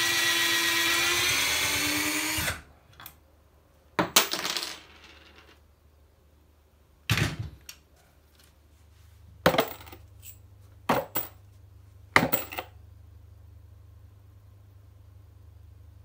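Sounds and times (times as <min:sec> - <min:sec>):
metal pieces dropping and clinking: 0:04.0 - 0:05.6, 0:09.5 - 0:11.4, 0:12.2 - 0:12.7.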